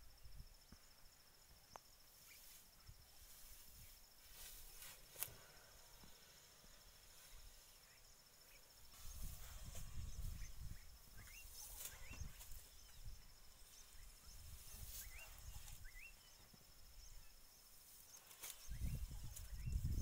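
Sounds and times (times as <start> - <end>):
insect trilling: 1.8 - 20.0
elephant feeding low thuds: 8.8 - 16.5.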